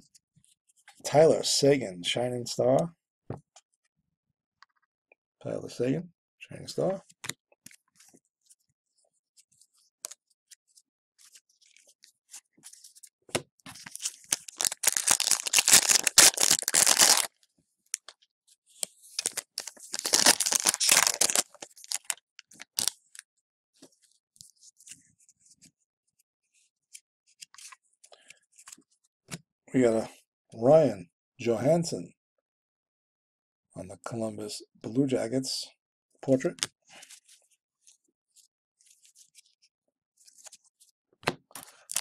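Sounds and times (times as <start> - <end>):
wrapper tearing and crinkling: 13.8 - 17.3, 19.2 - 23.0, 41.8 - 42.0.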